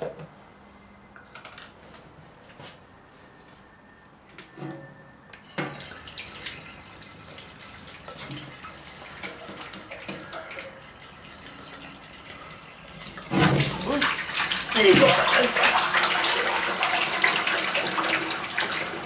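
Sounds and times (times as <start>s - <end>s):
oil glugging and splashing: 5.6s - 19.0s.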